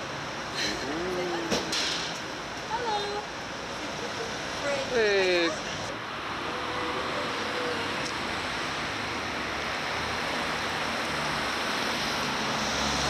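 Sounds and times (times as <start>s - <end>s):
rushing street ambience: 0.0s - 13.0s.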